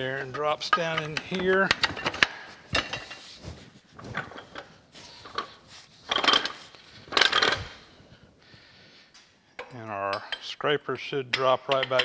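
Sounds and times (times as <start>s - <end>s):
metal clanking and knocking: 0.3s - 3.4s, 4.0s - 7.7s.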